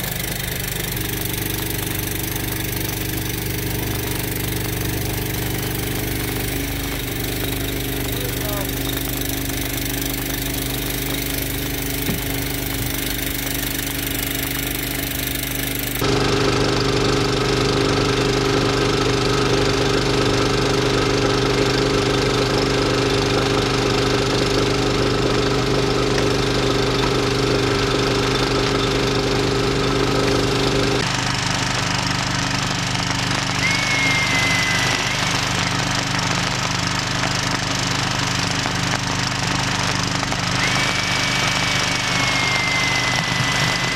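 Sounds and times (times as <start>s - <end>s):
hose spraying water: 0.0s - 16.0s, 31.0s - 43.9s
fire engine motor running: 0.0s - 43.9s.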